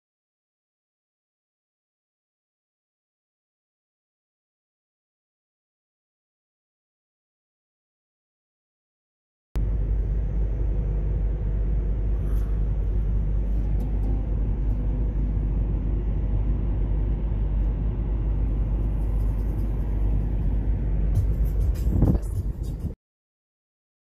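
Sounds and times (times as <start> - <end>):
vehicle engine rumbling: 9.6 - 23.0.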